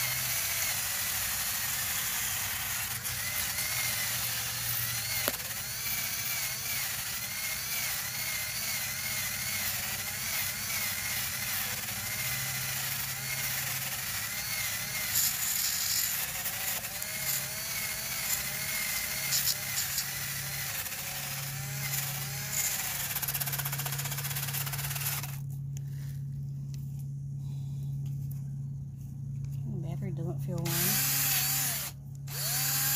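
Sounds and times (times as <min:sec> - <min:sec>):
cordless drill motor whine: 0:00.0 - 0:26.4, 0:30.6 - 0:32.9
wire brush scratching bark: 0:14.5 - 0:20.4.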